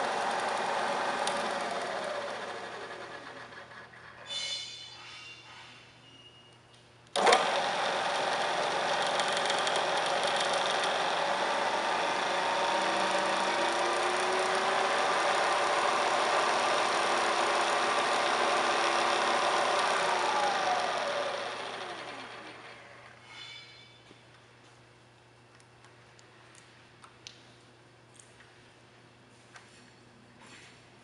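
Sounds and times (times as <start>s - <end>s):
milling machine spindle motor whirring: 0.0s - 3.8s, 7.1s - 23.0s.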